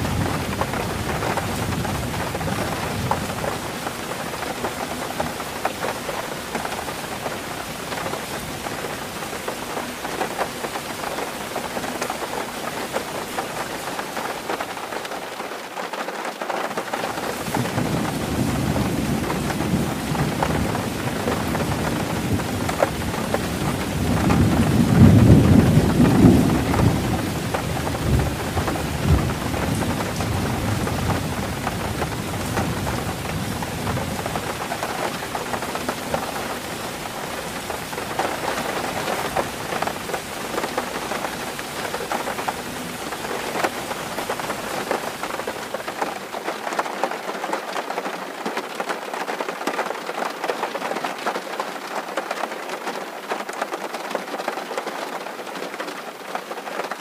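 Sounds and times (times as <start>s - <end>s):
thunder rolling: 0.0s - 9.3s, 17.1s - 45.8s
rain on a tin roof: 0.0s - 57.0s.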